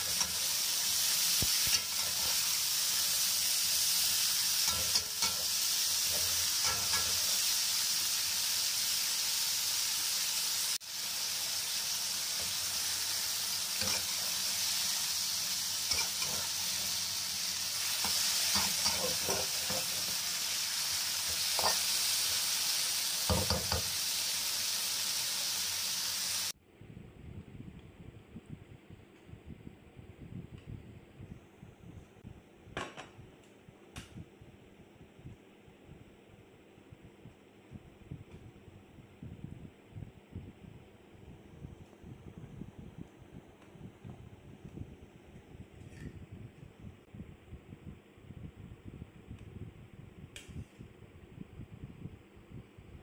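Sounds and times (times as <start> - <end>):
metal spatula scraping a pan: 0.0 - 3.6, 4.2 - 7.5, 13.7 - 14.4, 15.8 - 17.0, 17.7 - 20.6, 21.2 - 22.2
vegetables sizzling in hot oil: 0.0 - 26.6.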